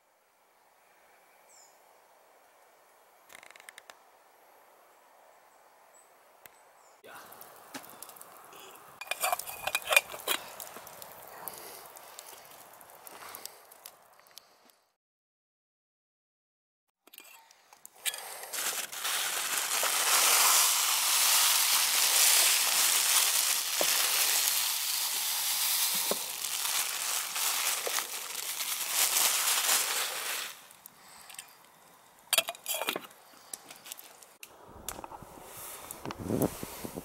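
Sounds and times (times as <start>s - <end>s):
metal lid clinking: 9.0s - 10.4s, 32.3s - 33.1s
granules pouring into pot: 9.0s - 12.8s, 18.5s - 30.8s
plastic bag crinkling: 18.1s - 30.8s.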